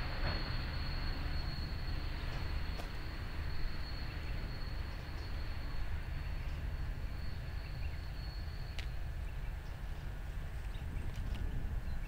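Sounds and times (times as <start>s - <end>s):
high-pitched insect tone: 0.0s - 9.3s
distant train rumble: 0.0s - 12.0s.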